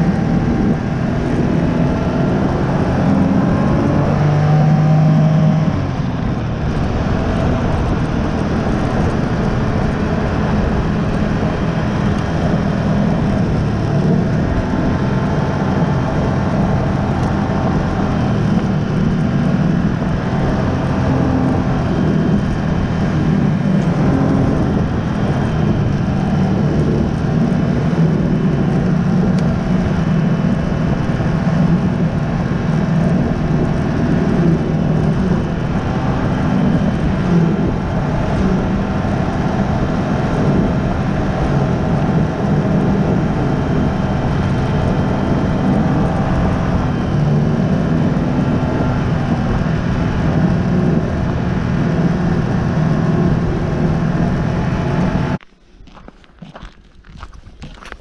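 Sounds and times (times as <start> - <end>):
snowmobile engine running: 0.0 - 55.4
track humming on snow: 0.0 - 58.0.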